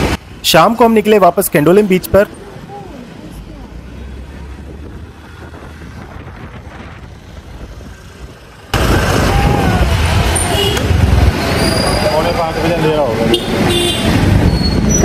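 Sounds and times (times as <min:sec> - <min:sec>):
road noise rumble: 0:00.0 - 0:15.0
wind buffeting microphone: 0:04.4 - 0:12.0.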